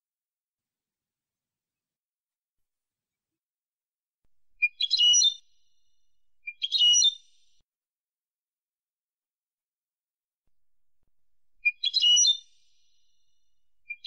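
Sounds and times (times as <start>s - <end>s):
goldfinch singing: 4.6s - 5.5s, 6.4s - 7.4s, 11.6s - 12.8s.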